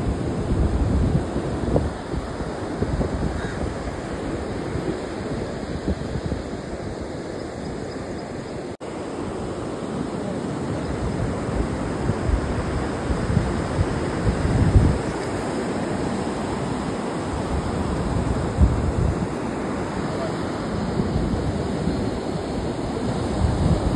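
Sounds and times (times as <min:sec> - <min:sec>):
sea surf breaking on shore: 0:00.0 - 0:23.9
wind buffeting microphone: 0:00.0 - 0:23.9.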